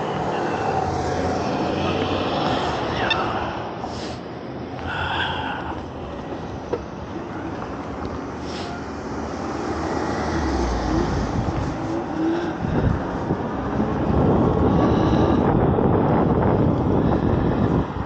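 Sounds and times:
wind buffeting microphone: 10.3s - 18.0s.

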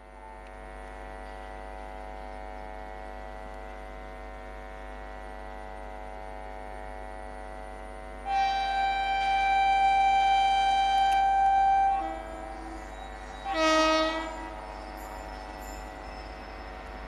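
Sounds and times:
sustained drone of held tones: 4.0s - 17.0s.

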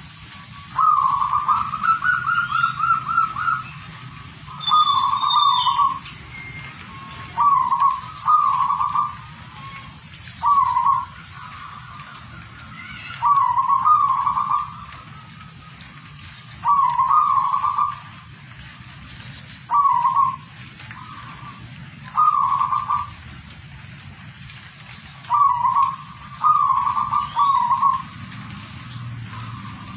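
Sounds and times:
dove cooing: 0.7s - 3.8s, 7.2s - 12.2s, 13.0s - 18.3s, 19.7s - 23.2s, 25.3s - 28.2s.

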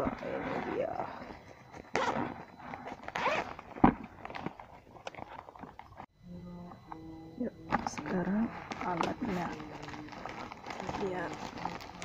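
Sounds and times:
steady low hum: 0.0s - 12.0s
zipper being pulled open: 1.9s - 2.4s, 3.0s - 3.6s.

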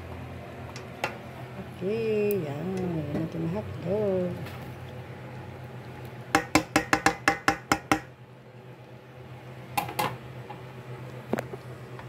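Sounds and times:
dishware knocking on steel pot: 6.4s - 8.1s.

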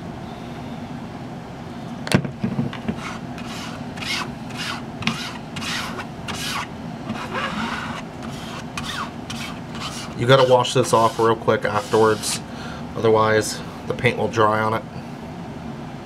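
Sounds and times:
plastic card scraping paint: 2.9s - 12.5s.

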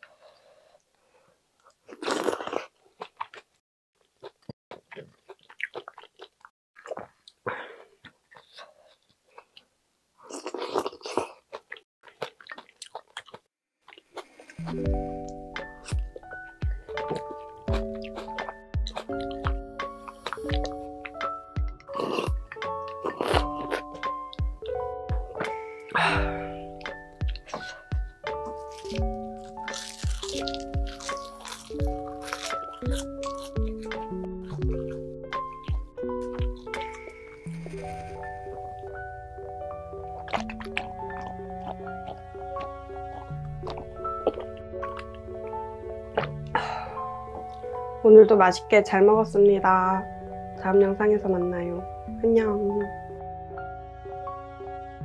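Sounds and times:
wet chewing and lip smacks: 4.2s - 9.7s, 10.3s - 14.8s, 15.6s - 25.6s, 26.8s - 37.8s, 40.2s - 45.2s
slurping: 10.3s - 39.1s
crackle of seaweed sheet bitten: 28.4s - 34.0s.

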